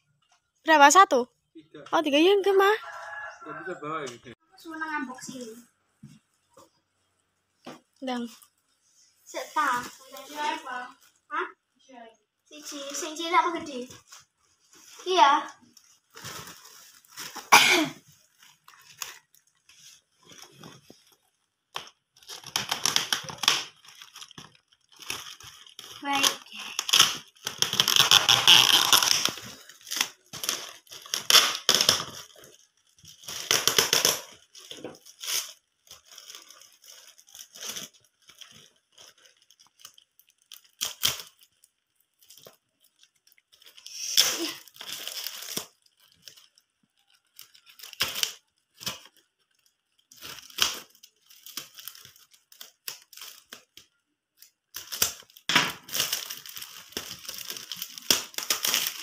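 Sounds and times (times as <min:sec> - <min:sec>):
plastic wrap crinkling: 0:02.0 - 0:03.7, 0:05.2 - 0:59.0
packing tape ripping: 0:21.7 - 0:41.6, 0:42.2 - 0:53.8, 0:54.4 - 0:59.0.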